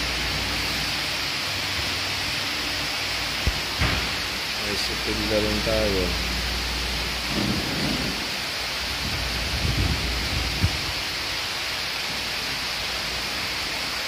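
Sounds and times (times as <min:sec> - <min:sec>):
machine shop hiss: 0:00.0 - 0:14.0
sharp knock: 0:03.5 - 0:04.2.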